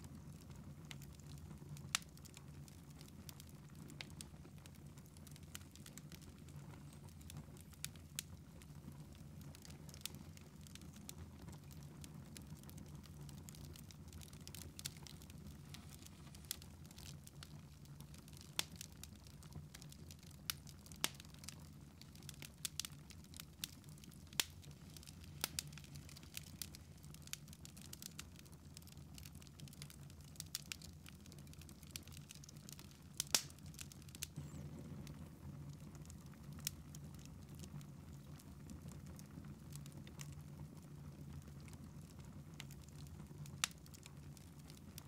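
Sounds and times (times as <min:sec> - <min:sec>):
wood fire crackling and popping: 0:00.0 - 0:45.0
low steady hum: 0:33.1 - 0:37.3.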